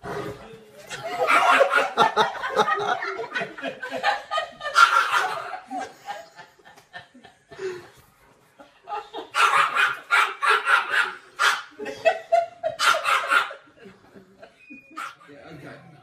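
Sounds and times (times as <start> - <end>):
people laughing: 0.8 - 10.8, 11.6 - 15.8
dog barking: 4.8 - 5.5, 9.4 - 11.7, 12.8 - 13.6.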